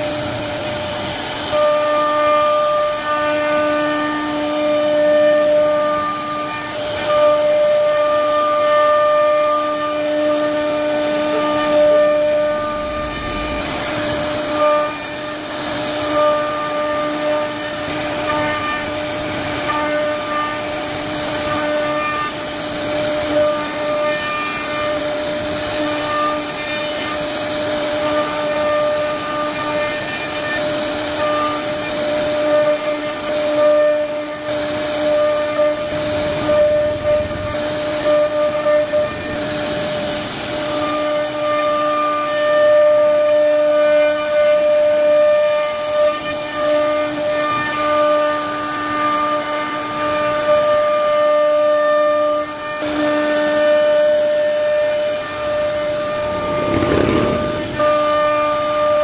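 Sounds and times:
hiss of cutting wood: 0:00.0 - 0:59.0
router spindle whine: 0:54.3 - 0:58.9.

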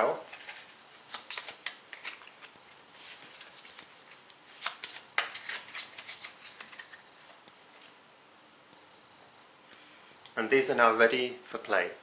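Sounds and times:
cards being shuffled: 0:00.2 - 0:08.0.

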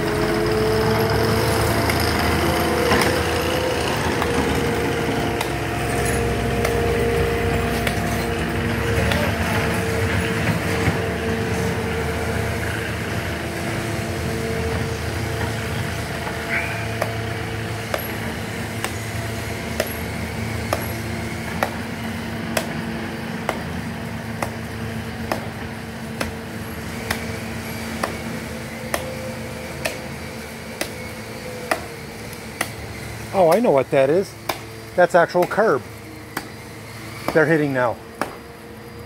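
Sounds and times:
engine hum: 0:00.0 - 0:39.0
digging tool chopping ground: 0:05.4 - 0:05.6, 0:06.6 - 0:06.8, 0:18.8 - 0:19.0, 0:19.7 - 0:20.0, 0:20.6 - 0:21.9, 0:22.5 - 0:22.8, 0:23.4 - 0:24.6, 0:25.2 - 0:26.4, 0:27.0 - 0:27.4, 0:28.0 - 0:28.3, 0:28.9 - 0:29.1, 0:29.8 - 0:30.0, 0:34.5 - 0:35.6, 0:37.2 - 0:38.4.

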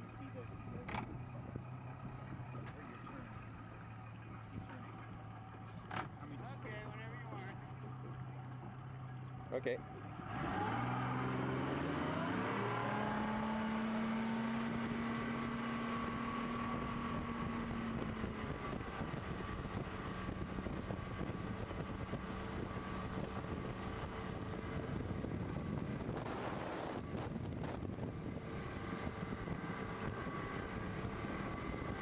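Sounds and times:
outboard motor revving: 0:00.0 - 0:32.0
wind noise: 0:16.4 - 0:32.0.

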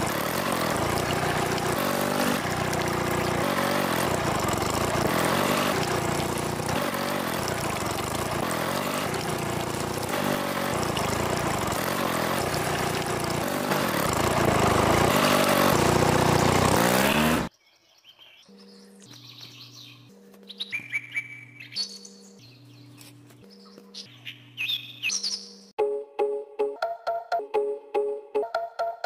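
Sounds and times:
toy engine water pump running: 0:00.0 - 0:17.5
water splashing: 0:00.0 - 0:17.5.

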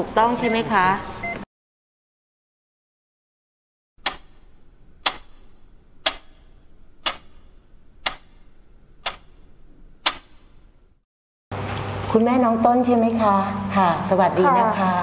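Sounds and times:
clock ticking: 0:04.0 - 0:09.4, 0:10.0 - 0:10.5.

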